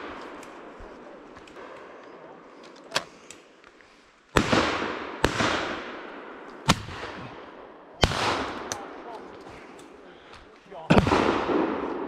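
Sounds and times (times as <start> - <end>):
shotgun shots echoing: 4.4 - 9.1, 10.9 - 12.0.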